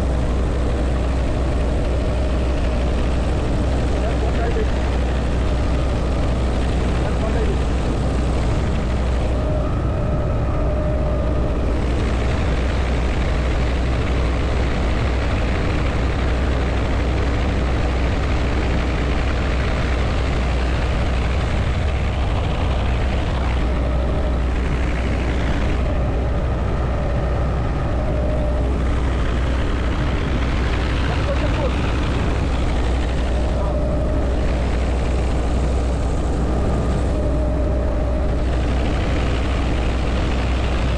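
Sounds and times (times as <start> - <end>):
helicopter rotor thrum: 0.0 - 40.9
wind and engine rush: 0.0 - 40.9.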